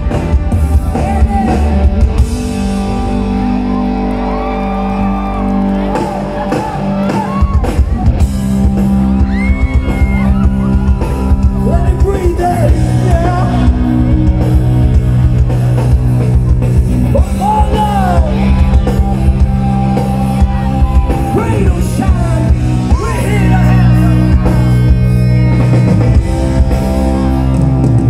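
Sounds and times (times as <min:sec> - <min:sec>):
drums: 0:00.0 - 0:28.0
live rock band through speakers: 0:00.0 - 0:28.0
man singing lead: 0:00.8 - 0:02.0, 0:11.6 - 0:14.1, 0:17.1 - 0:19.8, 0:20.4 - 0:24.9.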